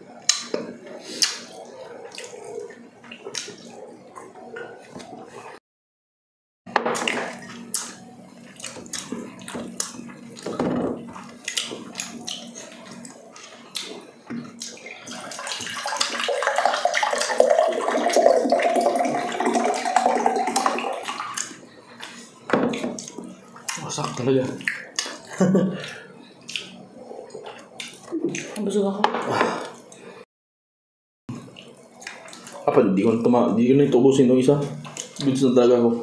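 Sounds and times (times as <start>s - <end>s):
water pouring into glass: 15.4s - 21.4s.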